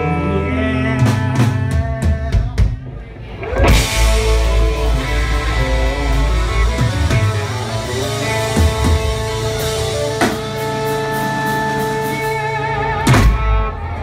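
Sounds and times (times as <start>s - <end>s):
bass drone: 0.0s - 14.0s
drum hits: 3.6s - 11.4s, 13.1s - 13.6s
drum and cymbal hit: 3.7s - 12.4s
electric guitar chord ringing: 3.7s - 13.1s.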